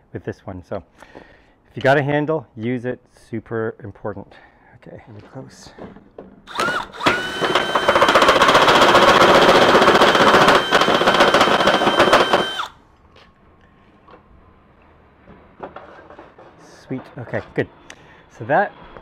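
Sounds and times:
drill bit grinding metal: 6.5s - 12.7s
drill motor whine: 6.5s - 12.8s.

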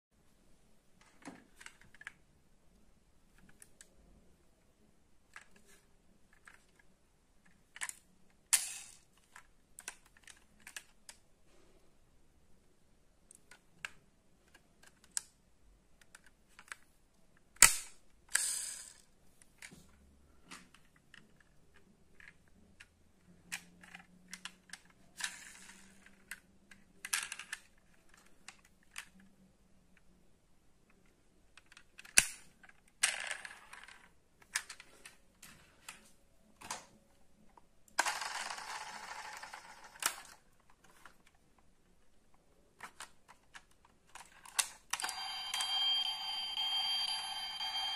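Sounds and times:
toy cars clicking on wood: 23.5s - 29.2s
toy cars rolling across wood: 38.0s - 41.2s.

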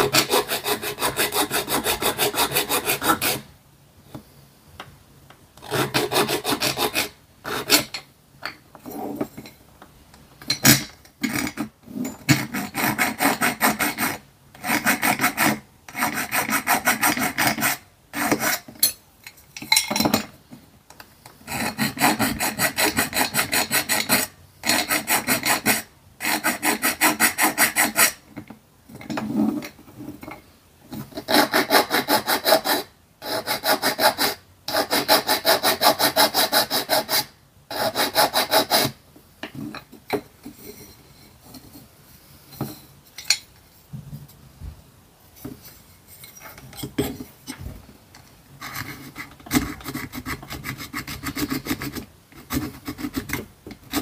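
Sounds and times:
hand file rasping on metal: 0.0s - 3.5s, 5.6s - 8.0s, 12.3s - 18.7s, 21.4s - 28.2s, 31.1s - 39.0s, 48.6s - 54.0s.

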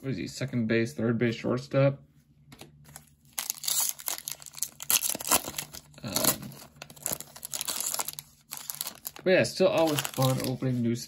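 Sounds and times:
plastic wrapper crinkling and tearing: 2.9s - 10.8s.

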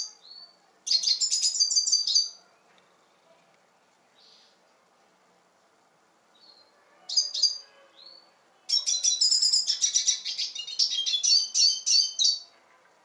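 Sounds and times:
bird chirps: 0.0s - 2.4s, 6.3s - 12.5s
bird twittering song: 0.0s - 2.4s, 6.3s - 12.5s.

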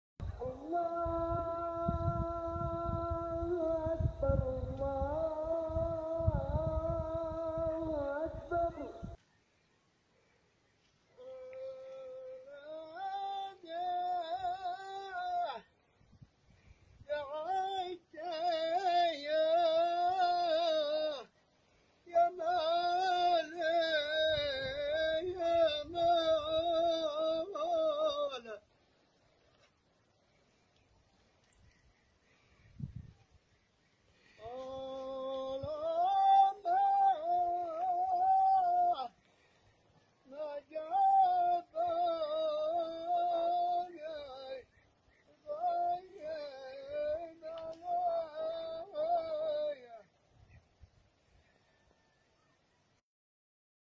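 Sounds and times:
high voice singing a chant: 0.2s - 9.2s, 34.4s - 39.2s, 40.2s - 50.1s.

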